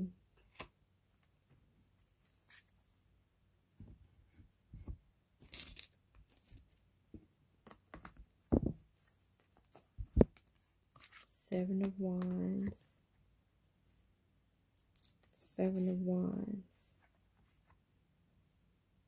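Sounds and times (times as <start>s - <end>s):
cards rustling and tapping: 4.8s - 12.8s.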